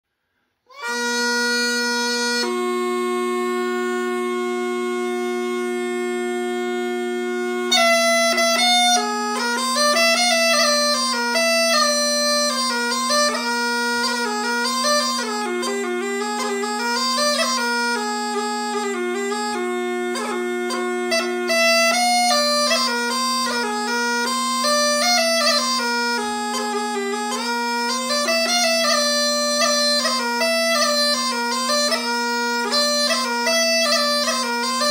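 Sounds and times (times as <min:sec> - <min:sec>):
bagpipe melody over drone: 0:00.7 - 0:34.9.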